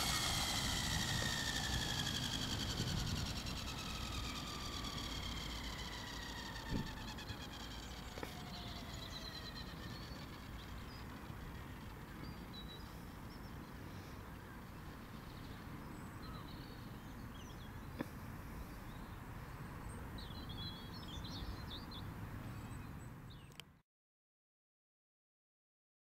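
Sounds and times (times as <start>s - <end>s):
steady low rumble: 0.0s - 13.2s
birds chirping: 0.0s - 18.0s.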